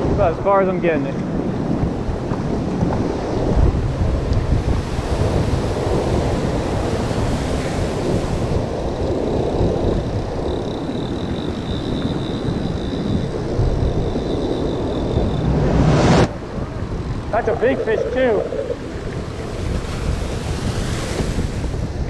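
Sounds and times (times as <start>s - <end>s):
wind buffeting microphone: 0.0s - 22.0s
ocean surf: 2.0s - 22.0s
thin high whine: 14.4s - 16.5s, 17.3s - 19.2s.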